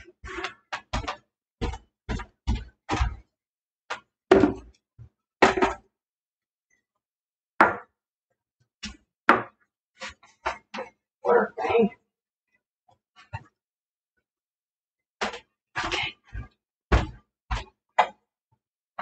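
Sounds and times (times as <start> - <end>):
household items knocking on a table: 4.3 - 4.7, 5.4 - 5.8.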